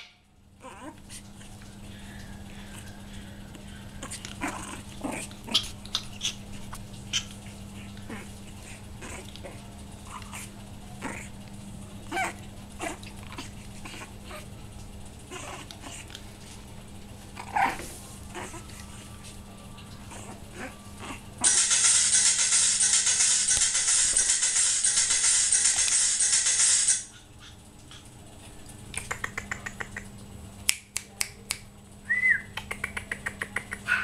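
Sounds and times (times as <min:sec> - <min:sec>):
puppy growling: 0:00.6 - 0:14.6, 0:15.2 - 0:16.4, 0:17.2 - 0:30.1
puppy yapping: 0:04.0 - 0:11.3, 0:12.0 - 0:14.5, 0:15.3 - 0:16.1, 0:17.4 - 0:19.1, 0:33.5 - 0:34.0.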